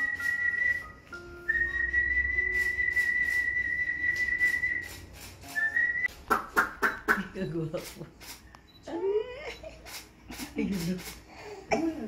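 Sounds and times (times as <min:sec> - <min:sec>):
high whistle-like held note: 0:00.0 - 0:06.1.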